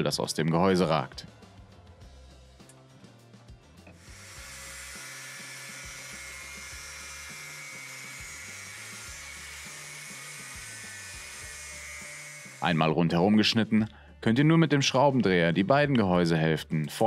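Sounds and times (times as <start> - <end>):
angle grinder cutting steel: 3.9 - 13.2.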